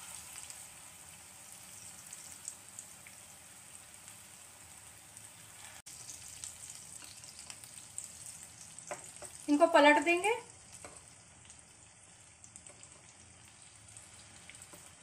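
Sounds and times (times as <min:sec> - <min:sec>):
deep-frying sizzle in oil: 0:00.0 - 0:15.0.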